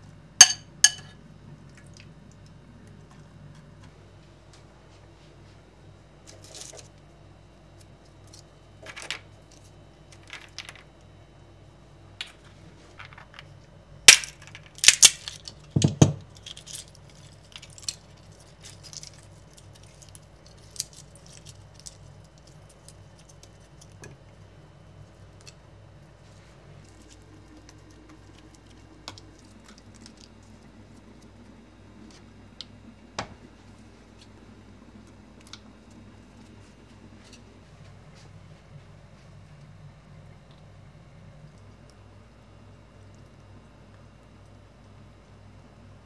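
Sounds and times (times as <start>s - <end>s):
small hard objects clicking and clinking: 8.8s - 10.9s, 14.1s - 24.0s.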